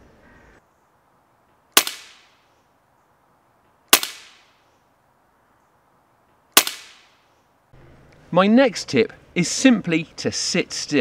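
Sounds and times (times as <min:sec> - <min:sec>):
air rifle shots: 0:01.8 - 0:02.4, 0:03.9 - 0:04.6, 0:06.6 - 0:07.2.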